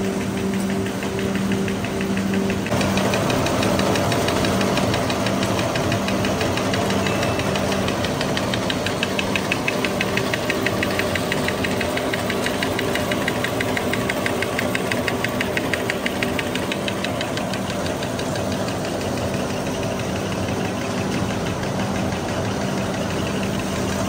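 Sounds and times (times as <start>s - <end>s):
machine humming: 0.0s - 24.0s
rapid even ticking: 0.0s - 24.0s.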